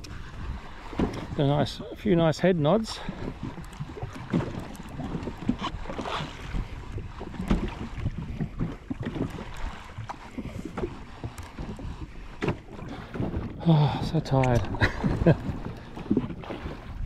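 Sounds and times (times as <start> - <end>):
water lapping against hull: 0.0 - 17.0
wind buffeting microphone: 0.0 - 17.0.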